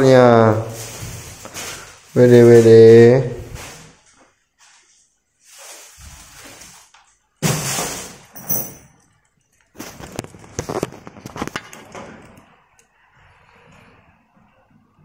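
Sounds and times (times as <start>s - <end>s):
loud rustle or knock: 7.4s - 8.5s
irregular clicks and rustles: 8.2s - 13.0s.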